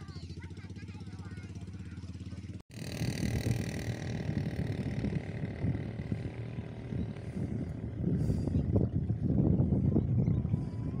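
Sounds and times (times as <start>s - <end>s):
boat engine humming: 0.0s - 11.0s
wind rumbling on microphone: 2.8s - 11.0s.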